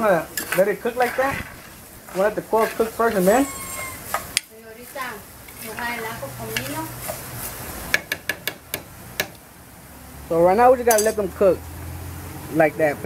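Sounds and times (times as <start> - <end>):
person calling out loudly: 3.2 - 4.1.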